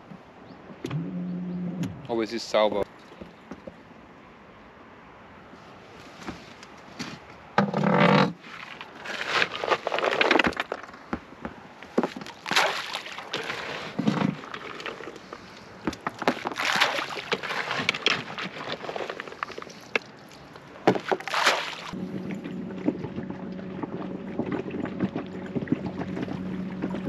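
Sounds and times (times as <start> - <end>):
fishing gear knocks and scrapes: 13.2 - 16.6.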